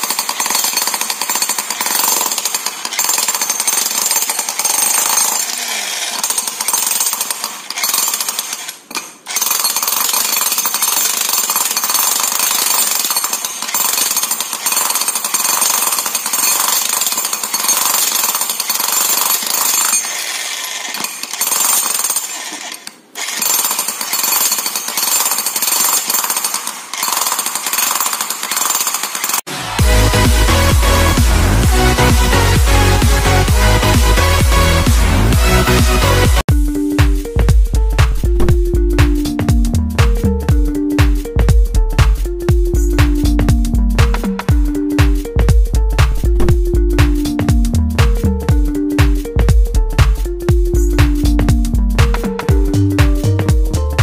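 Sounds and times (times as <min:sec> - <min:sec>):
demolition hammer pounding stone: 0:00.0 - 0:05.5.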